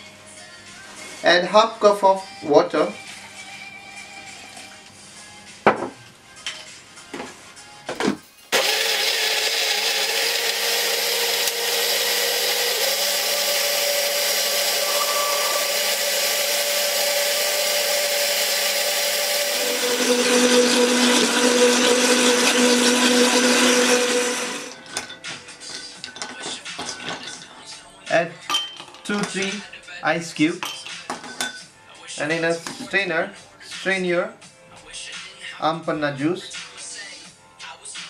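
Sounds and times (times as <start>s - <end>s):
electric blender running: 8.5s - 24.8s.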